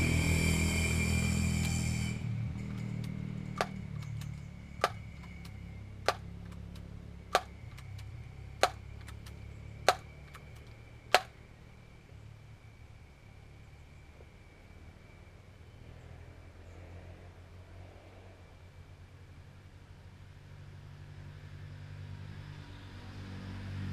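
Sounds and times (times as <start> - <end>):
air rifle pump clicks: 3.0 - 11.3.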